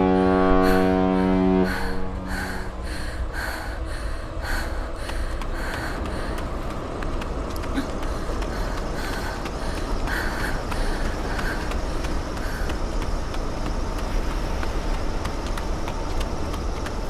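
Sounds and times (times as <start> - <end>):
steady low rumble: 0.0 - 17.0
woman panting: 0.1 - 13.5.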